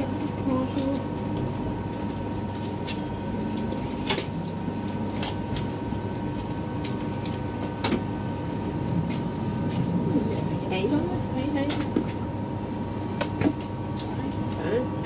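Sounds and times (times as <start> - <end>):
train running rumble and whine: 0.0 - 15.0.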